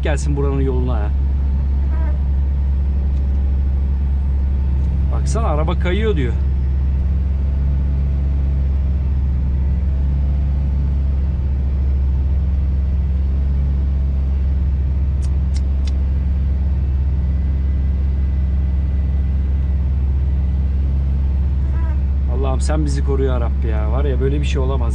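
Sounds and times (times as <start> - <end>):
diesel truck engine droning: 0.0 - 24.9
short sharp clicks: 15.2 - 16.0.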